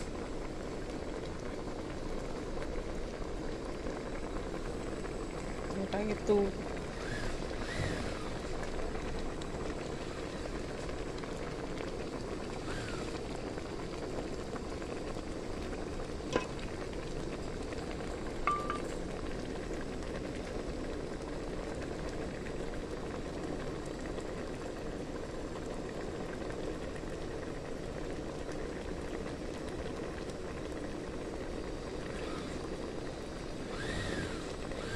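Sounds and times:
curry bubbling in a metal pot: 0.0s - 34.9s.

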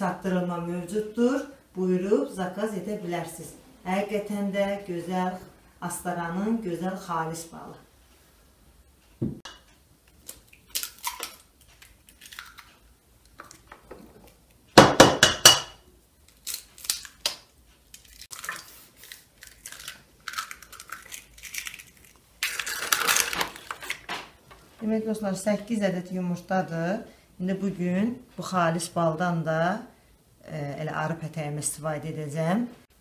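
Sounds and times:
eggs cracking on metal bowl: 9.5s - 13.9s, 14.8s - 24.1s.

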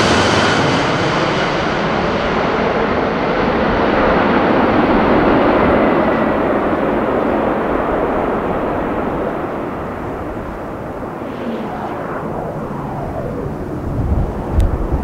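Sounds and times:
jet plane passing overhead: 0.0s - 15.0s.

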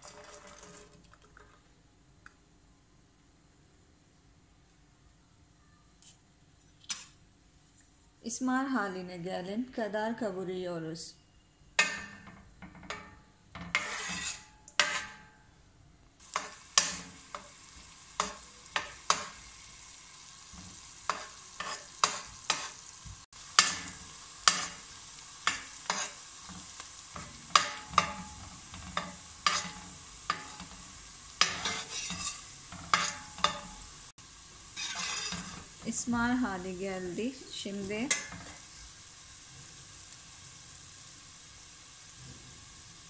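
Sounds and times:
metal spoon scraping pot: 11.8s - 15.3s, 31.4s - 33.7s, 34.8s - 35.7s
onions sizzling in oil: 11.8s - 15.3s, 16.2s - 43.0s.

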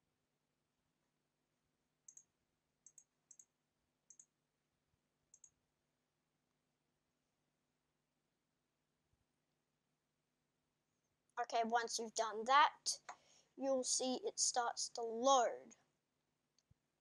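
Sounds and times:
computer mouse clicks: 2.1s - 3.5s, 4.1s - 4.3s, 5.3s - 5.6s.

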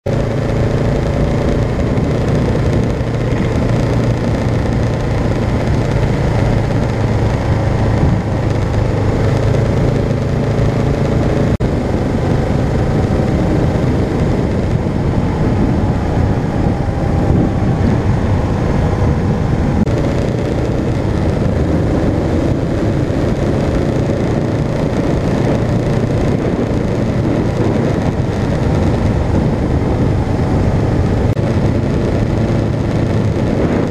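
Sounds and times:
road noise: 0.0s - 33.9s
single-cylinder engine running: 0.0s - 33.9s
wind noise: 0.0s - 33.9s.

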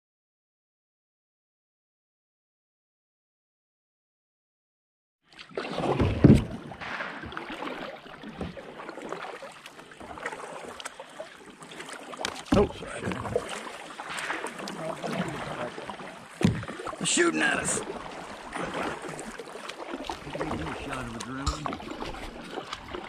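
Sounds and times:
paddle strokes splashing in water: 5.3s - 23.0s.

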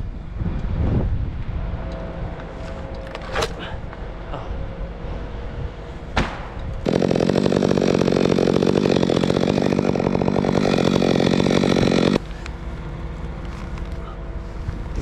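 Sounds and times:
chainsaw cutting wood: 6.8s - 12.2s.

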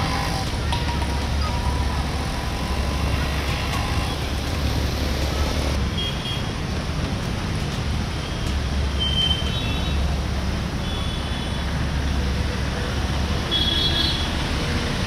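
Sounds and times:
water churning: 0.0s - 5.8s
motorbike engines rumbling: 0.0s - 6.0s.

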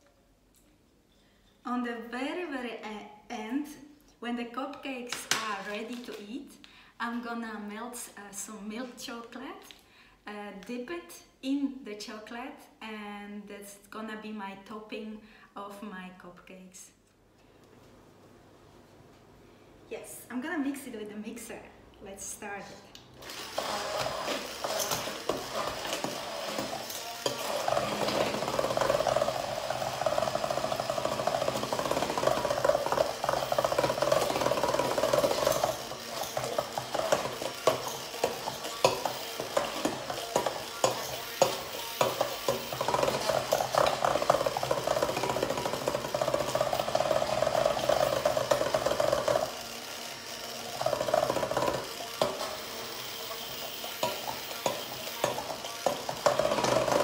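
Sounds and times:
hand blender whirring: 23.2s - 57.0s.

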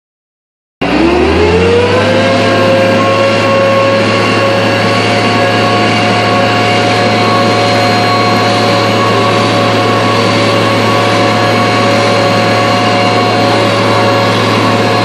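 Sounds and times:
truck engine and hydraulics humming: 0.8s - 15.0s.

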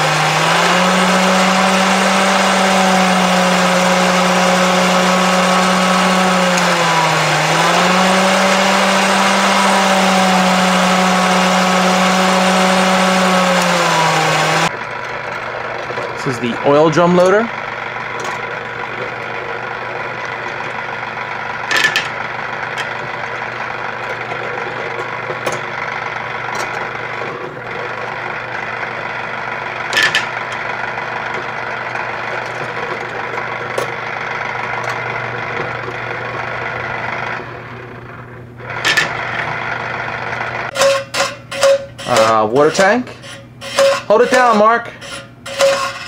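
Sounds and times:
toy motor buzzing: 0.0s - 14.7s, 40.8s - 46.0s.

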